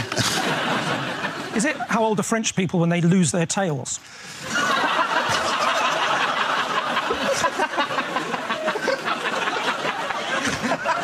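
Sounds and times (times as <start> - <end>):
audience laughing: 0.0 - 2.2, 4.4 - 11.0.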